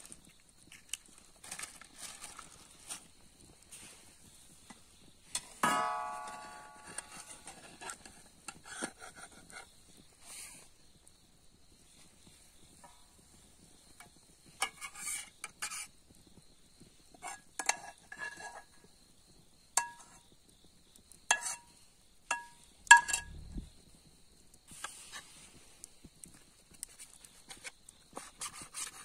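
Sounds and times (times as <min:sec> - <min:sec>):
metal utensil clinking on pot: 0:05.4 - 0:07.7, 0:19.8 - 0:20.2, 0:21.3 - 0:21.6, 0:22.3 - 0:23.4.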